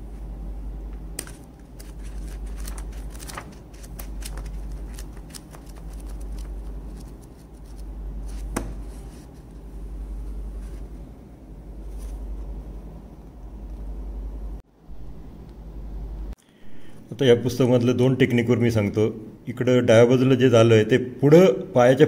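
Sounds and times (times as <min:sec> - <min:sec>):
paper snap: 0:01.1 - 0:08.8
book pages flicking: 0:01.2 - 0:09.0.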